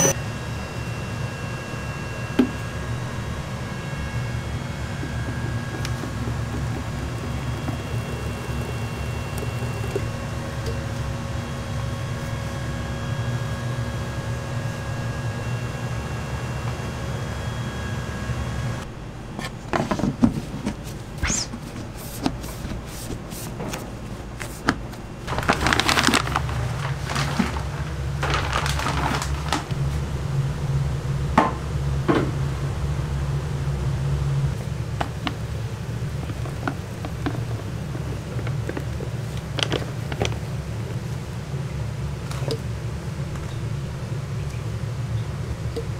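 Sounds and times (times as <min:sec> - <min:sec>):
machine humming: 0:00.0 - 0:18.9
plastic bag liners rustling: 0:25.3 - 0:29.8.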